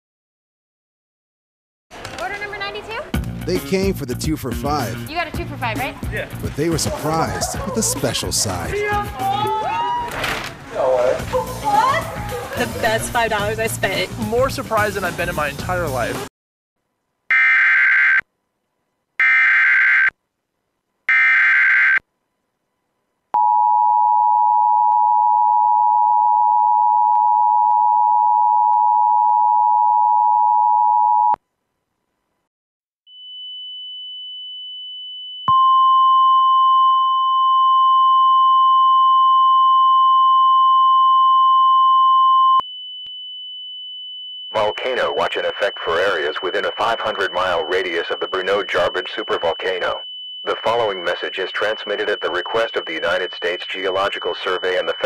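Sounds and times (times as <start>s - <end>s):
two-tone attention signal: 44.5s - 55.0s
screeching digital header bursts: 44.6s - 55.0s.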